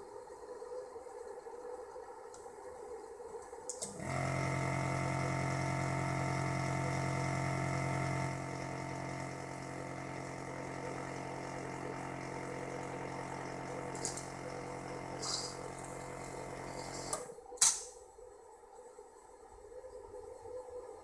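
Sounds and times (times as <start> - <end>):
vacuum pump humming: 3.8 - 17.3.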